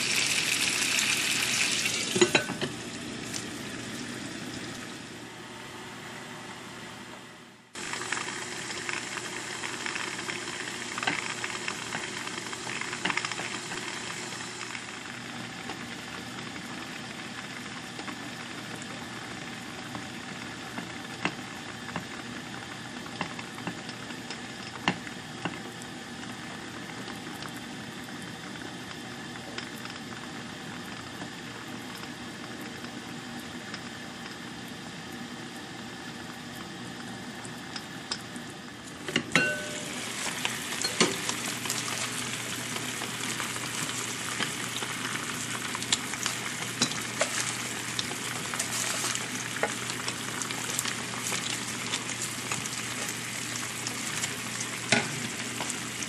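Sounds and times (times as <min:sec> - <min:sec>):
food sizzling in a pot: 0:00.0 - 0:05.1, 0:07.8 - 0:15.4, 0:39.4 - 0:56.0
pot lid clink: 0:02.1 - 0:02.7, 0:39.4 - 0:40.0
crackles and pops: 0:07.8 - 0:16.6, 0:40.3 - 0:56.0.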